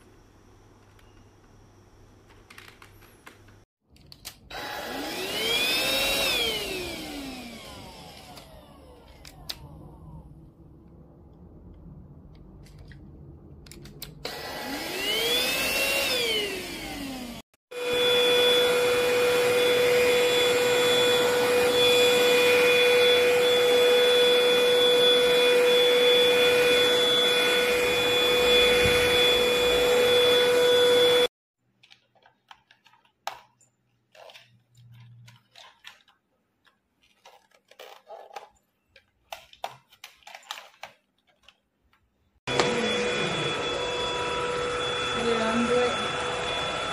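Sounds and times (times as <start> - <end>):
vacuum motor whining: 4.5 - 10.3, 14.2 - 31.3, 42.5 - 46.9.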